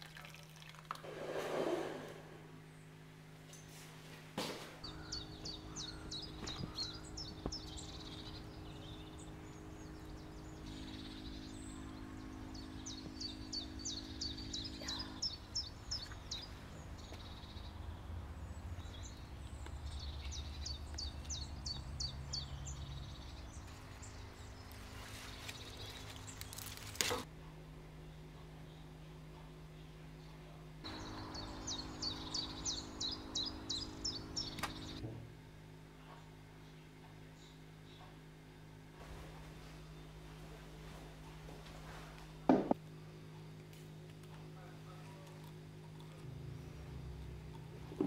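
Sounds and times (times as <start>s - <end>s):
steady low hum: 0.0s - 48.0s
songbird chirping: 4.8s - 27.2s, 28.0s - 35.0s.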